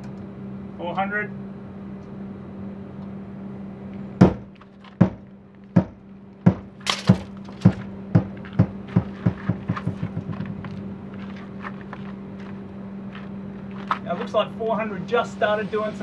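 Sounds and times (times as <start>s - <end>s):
sledgehammer knocking on wall: 4.2s - 5.2s, 5.8s - 10.7s.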